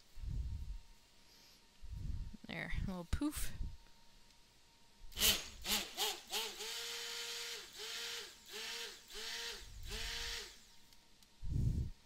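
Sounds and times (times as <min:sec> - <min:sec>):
stick blender motor whine: 0:05.1 - 0:10.8.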